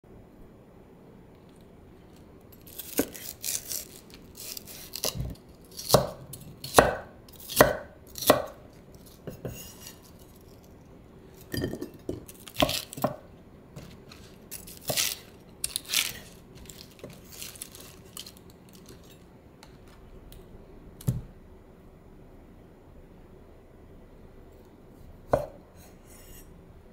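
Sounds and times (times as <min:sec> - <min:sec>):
knife cutting cabbage on board: 0:02.7 - 0:10.2, 0:12.4 - 0:13.2, 0:13.8 - 0:17.8.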